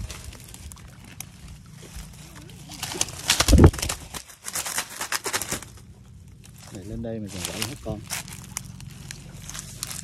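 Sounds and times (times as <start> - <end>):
undergrowth rustling and crackling: 0.0 - 10.0.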